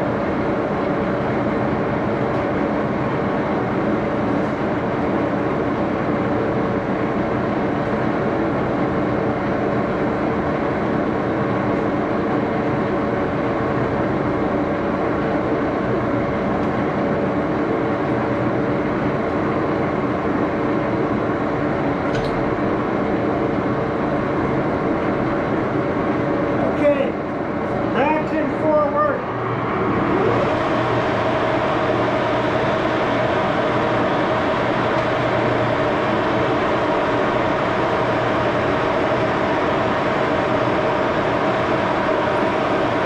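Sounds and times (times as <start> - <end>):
lathe running: 22.6 - 43.0.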